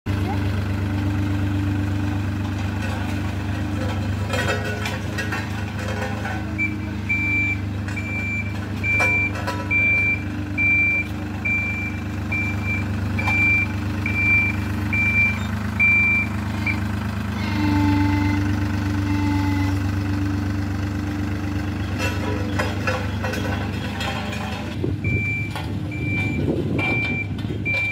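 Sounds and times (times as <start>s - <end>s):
diesel engine running: 0.1s - 27.9s
reversing alarm beeps: 6.6s - 16.8s, 25.0s - 27.9s.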